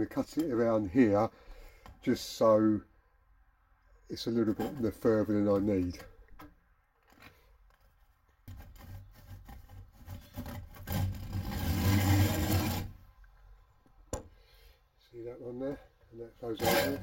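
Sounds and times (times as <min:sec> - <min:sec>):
hacksaw cutting pipe: 0:08.5 - 0:13.0, 0:16.4 - 0:17.0.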